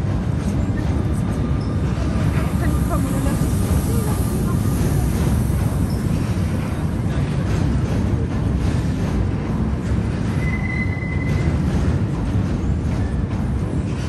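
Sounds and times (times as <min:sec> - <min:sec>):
train wheels rumbling on rail: 0:00.0 - 0:14.0
high-pitched wheel squeal: 0:10.4 - 0:11.5.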